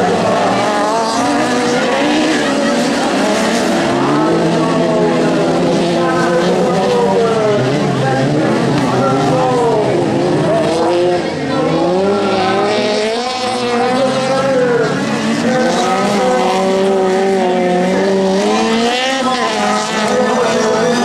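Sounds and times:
buggy engines revving: 0.0s - 21.0s.

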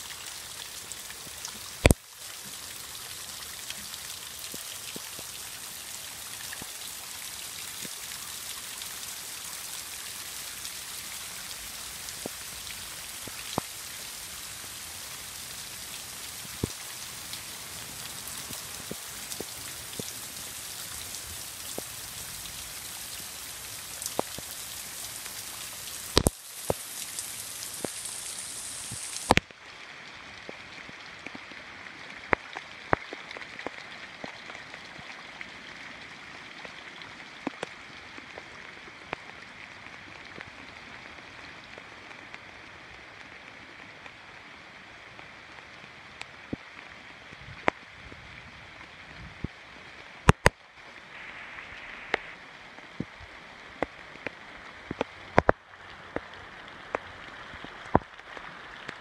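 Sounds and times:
rain falling on water: 0.0s - 59.0s
rain drop ticks: 0.1s - 29.6s, 37.4s - 39.4s, 50.2s - 50.6s, 51.6s - 59.0s.

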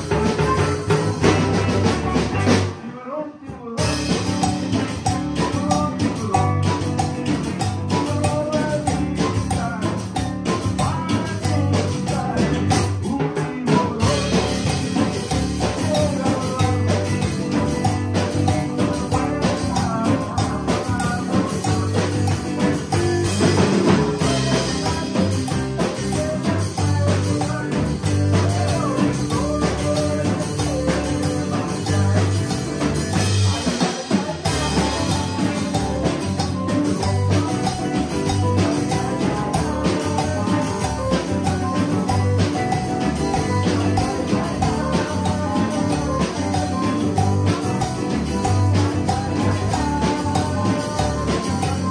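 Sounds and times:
electric bass line: 0.0s - 2.8s, 3.8s - 13.1s, 13.9s - 51.9s
drum kit with cymbals: 0.0s - 51.9s
electric guitar: 0.0s - 51.9s
keyboard: 3.8s - 13.2s, 13.8s - 51.9s.

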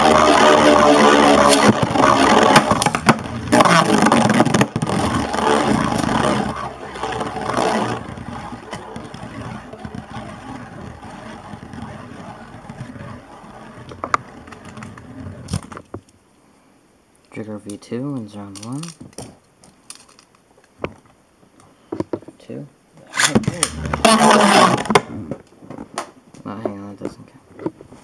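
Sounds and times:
spinning tops whirring and scraping: 0.0s - 15.7s, 23.2s - 25.0s.

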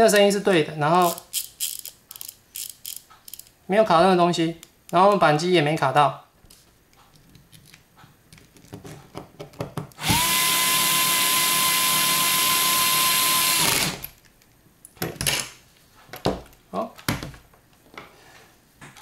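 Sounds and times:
clicks and knocks of handling parts: 1.0s - 3.6s, 6.5s - 10.0s
electric screwdriver motor whine: 10.0s - 14.1s.

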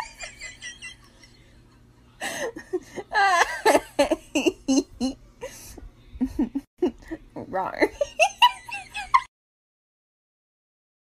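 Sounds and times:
person giggling: 0.0s - 7.3s.

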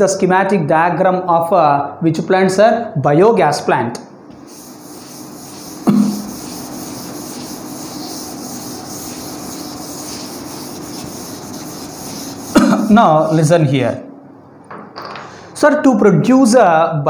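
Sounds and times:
duster scrubbing a chalkboard: 4.4s - 13.7s.

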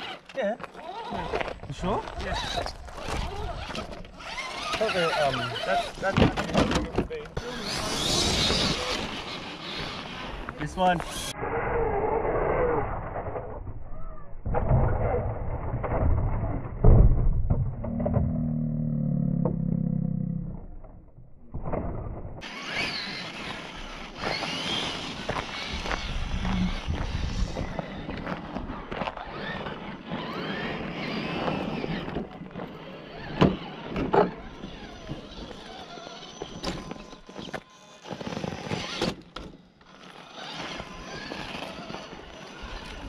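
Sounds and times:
electric motor whining: 7.3s - 13.4s, 22.4s - 43.0s
electric motor hum: 22.4s - 28.3s.

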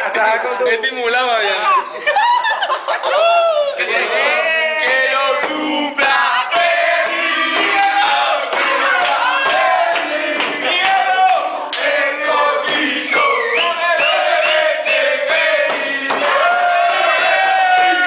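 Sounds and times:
group chant-singing birthday song: 3.8s - 18.0s.

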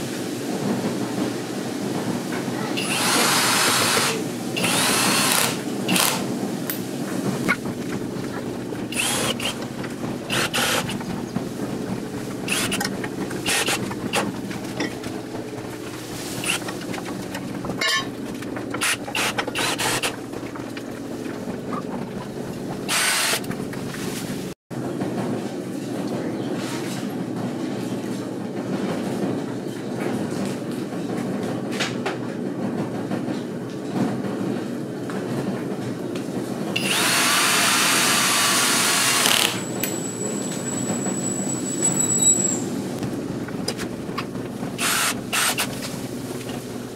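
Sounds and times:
cordless drill driving screws: 2.8s - 6.3s, 8.5s - 11.2s, 12.5s - 14.4s, 18.8s - 20.2s, 22.9s - 23.5s, 36.8s - 39.6s, 44.8s - 45.8s.

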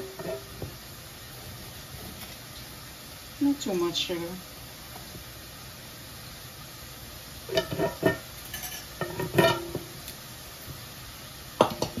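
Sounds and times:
kitchen utensils clinking: 0.0s - 0.6s, 7.5s - 9.9s.

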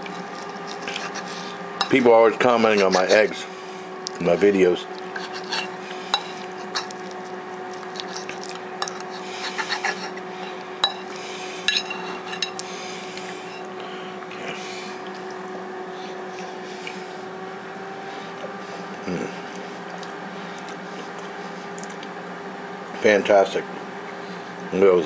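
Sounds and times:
fork scraping ceramic plate: 0.3s - 2.0s, 2.7s - 3.2s, 5.1s - 13.7s.

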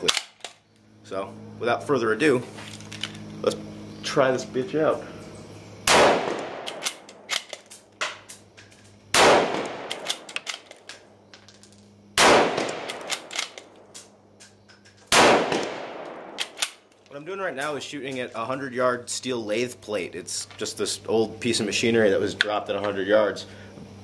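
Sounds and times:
rifle shots with echo: 5.9s - 7.4s, 9.1s - 10.3s, 12.2s - 13.6s, 15.1s - 16.8s
rifle bolt clicks: 9.6s - 11.0s, 12.6s - 13.8s.

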